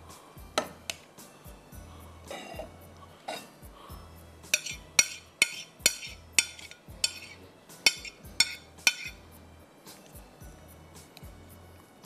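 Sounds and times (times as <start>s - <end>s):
metal spoon scraping a plate: 4.4s - 9.2s.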